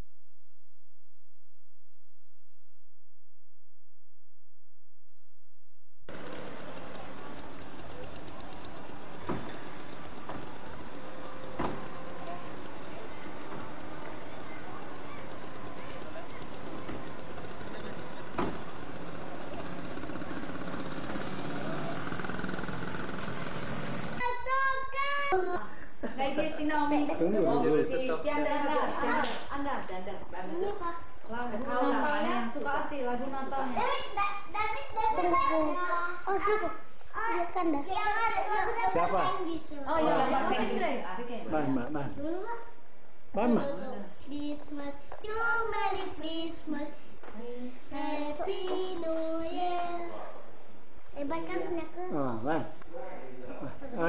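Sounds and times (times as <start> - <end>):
vehicle engine running: 6.1 - 24.4
street noise: 6.1 - 26.0
child singing: 24.2 - 25.7, 44.3 - 50.3.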